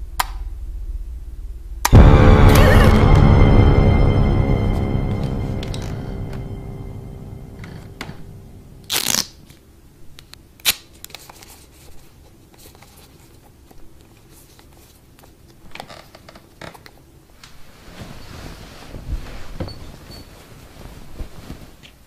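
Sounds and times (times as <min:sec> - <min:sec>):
dark tense film music: 0:01.9 - 0:09.1
soft rustles: 0:17.4 - 0:22.0.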